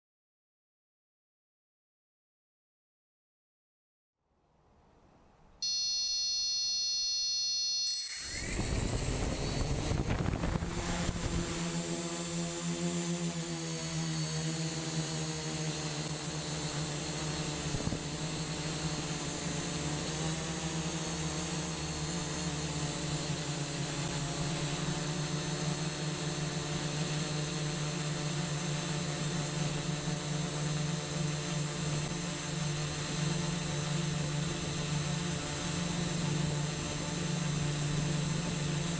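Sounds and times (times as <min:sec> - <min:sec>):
brief electronic tone: 0:05.6 - 0:10.4
drone motors humming and whining: 0:05.6 - 0:38.9.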